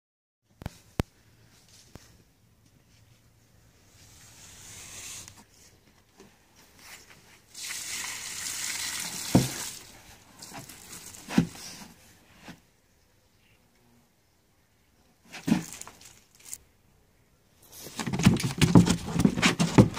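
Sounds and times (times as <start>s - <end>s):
liquid pouring and splashing: 7.5s - 11.4s.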